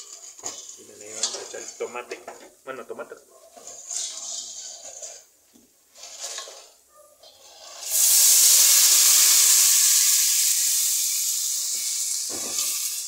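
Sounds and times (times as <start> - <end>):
tomato sizzling in hot oil: 3.5 - 13.0.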